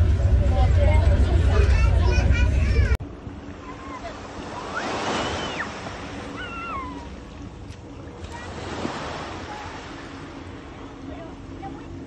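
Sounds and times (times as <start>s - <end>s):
surf washing onto beach: 3.6s - 7.1s, 8.2s - 10.4s.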